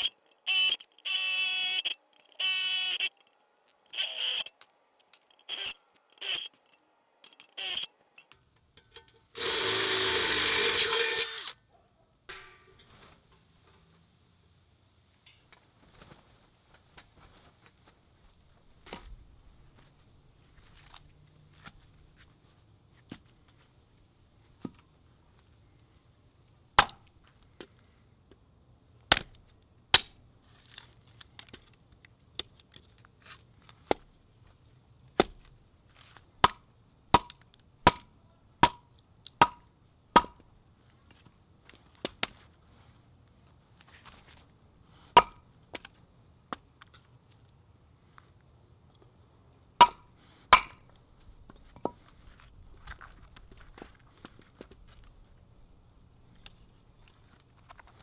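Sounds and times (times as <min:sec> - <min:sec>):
hatchet chopping wood: 0:26.8 - 0:27.1, 0:29.1 - 0:30.2, 0:35.2 - 0:35.5, 0:36.4 - 0:40.4, 0:45.2 - 0:45.4, 0:49.8 - 0:50.9.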